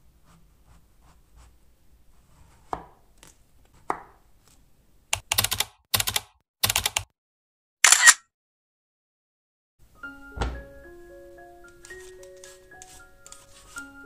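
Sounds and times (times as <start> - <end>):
keyboard typing sound effect: 5.2 - 7.1
knife knocks on board: 10.4 - 10.7.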